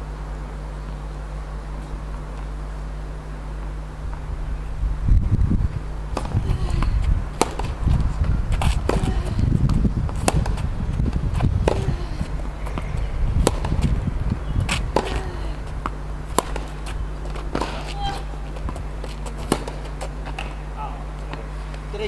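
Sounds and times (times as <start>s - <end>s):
steady low rumble: 0.0s - 22.0s
racket striking tennis ball: 6.1s - 20.6s
tennis ball bouncing: 6.1s - 20.6s.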